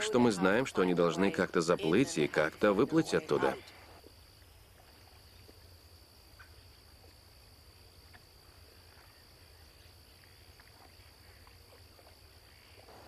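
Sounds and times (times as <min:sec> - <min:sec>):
insects droning: 0:00.0 - 0:13.0.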